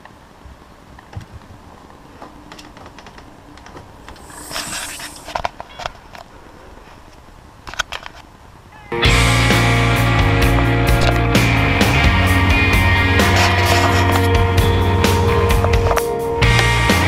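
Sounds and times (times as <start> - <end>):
brief rushing hiss: 4.2 - 5.4
small clicks and knocks: 7.1 - 8.3.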